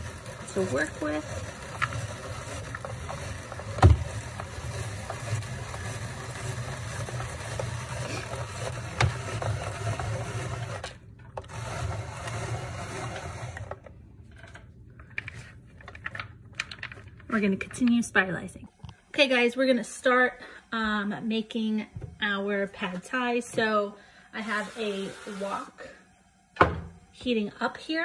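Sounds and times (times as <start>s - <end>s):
spiralizer crank grinding: 0.0s - 14.6s, 24.4s - 25.9s.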